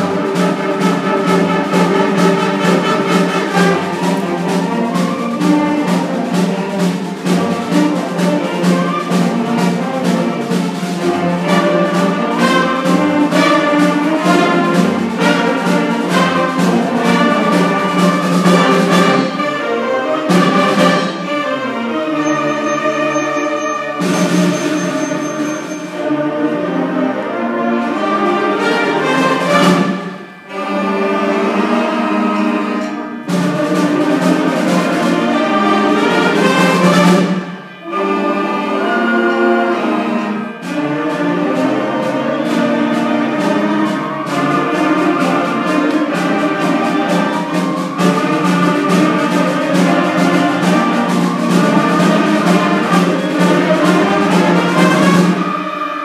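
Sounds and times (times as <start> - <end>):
concert band playing: 0.0 - 56.0.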